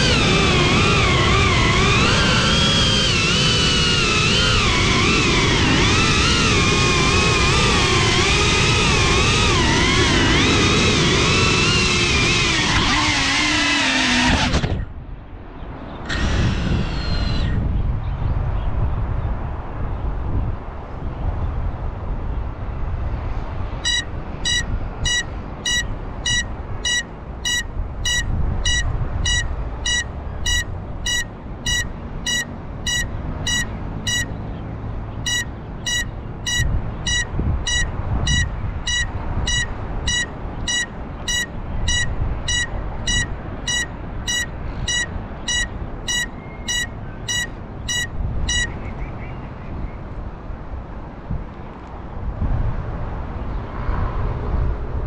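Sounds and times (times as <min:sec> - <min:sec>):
drone buzzer beeping: 0:00.0 - 0:06.7, 0:23.8 - 0:34.4, 0:35.2 - 0:48.7
wind rumble on microphone: 0:00.0 - 0:55.0.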